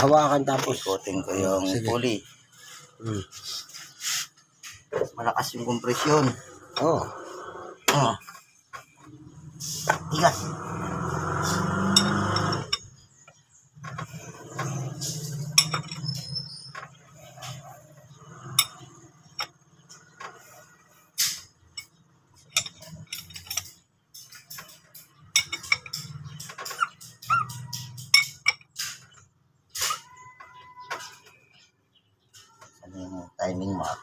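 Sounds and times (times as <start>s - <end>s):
hand tools clinking on engine: 9.9s - 13.0s, 13.9s - 17.6s, 21.2s - 29.2s.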